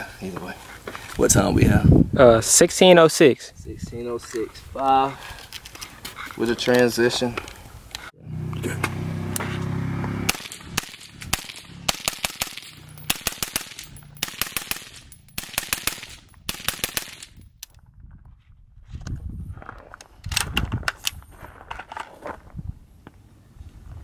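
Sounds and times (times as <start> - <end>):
suppressed rifle rapid fire: 10.3 - 17.4.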